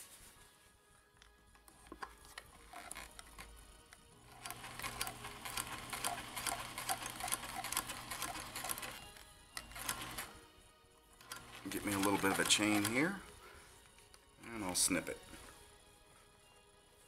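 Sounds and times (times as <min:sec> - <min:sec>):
rapid ticking of needle: 0:04.3 - 0:09.0
serger motor hum: 0:09.6 - 0:10.3.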